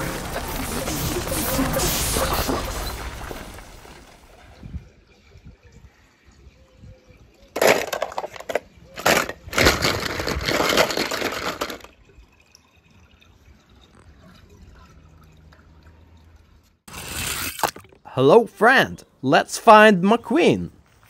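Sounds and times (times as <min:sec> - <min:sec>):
water splashing: 0:00.0 - 0:04.7.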